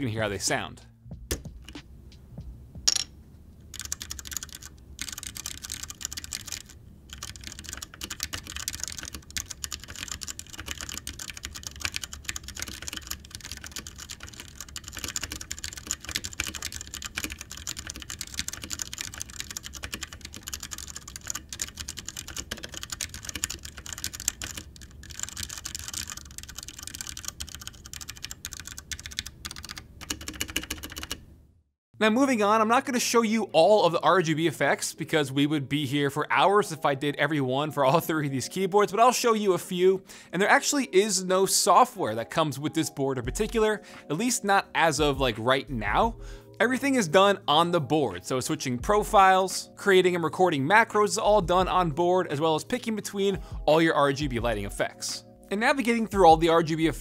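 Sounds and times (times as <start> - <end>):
mechanical keyboard typing: 3.7 - 31.2.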